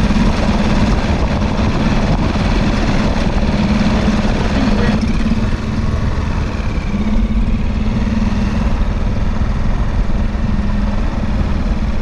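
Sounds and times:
outboard motor hum: 0.0 - 12.0
wind buffeting microphone: 0.0 - 12.0.

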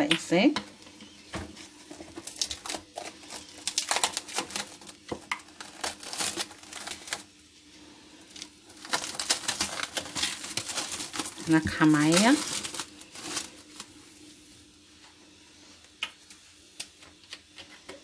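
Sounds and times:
crinkling handling noises: 0.8 - 15.1.

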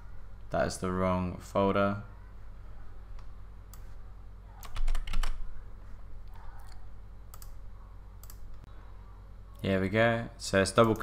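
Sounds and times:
computer keyboard clicking: 4.6 - 5.4, 6.3 - 7.6.

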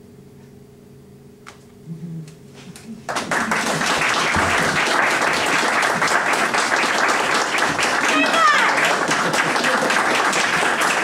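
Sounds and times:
audience applause: 3.0 - 11.0.

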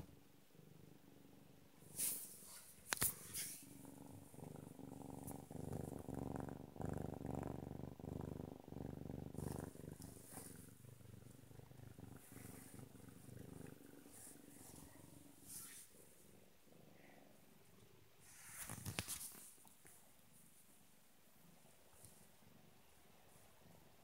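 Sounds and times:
cat purring: 0.0 - 24.0
rustle of handling: 1.9 - 3.7, 18.3 - 20.0.

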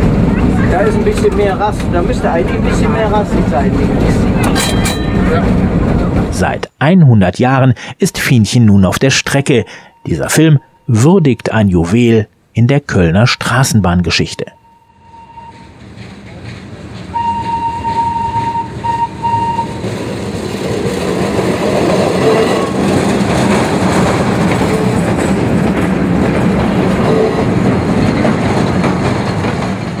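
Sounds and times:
tram wheels clattering on rails: 0.0 - 6.6, 15.3 - 30.0
high signal tone: 8.9 - 11.7, 13.2 - 15.7, 17.1 - 19.8.

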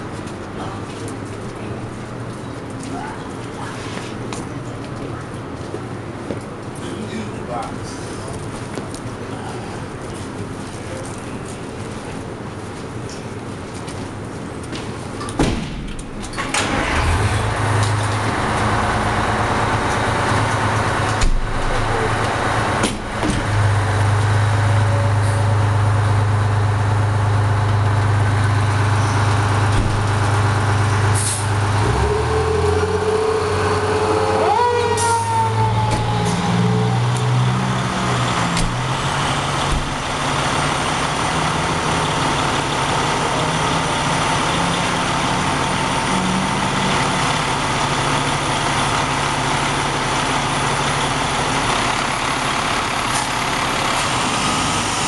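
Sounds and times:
diesel engine running: 0.0 - 55.0
air brakes hissing: 31.1 - 34.0.

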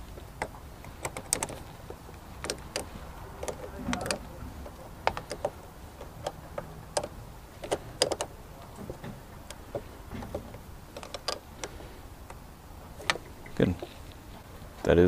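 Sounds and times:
wrench clicking on battery terminal: 0.4 - 8.3.

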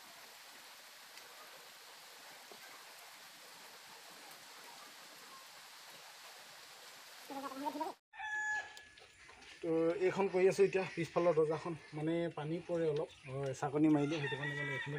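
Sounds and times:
light rain hissing: 0.0 - 8.0
soft ticks of raindrops: 0.2 - 7.6, 11.8 - 14.0.

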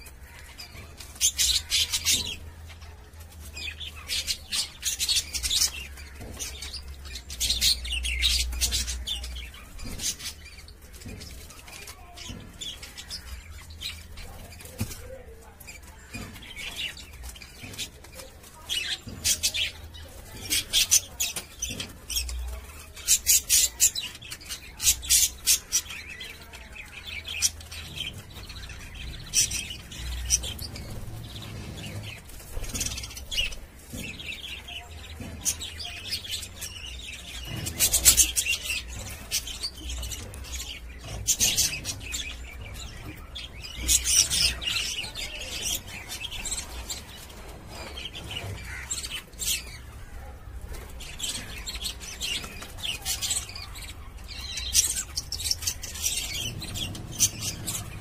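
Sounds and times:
budgerigars chirping: 18.6 - 50.4, 51.0 - 58.0.

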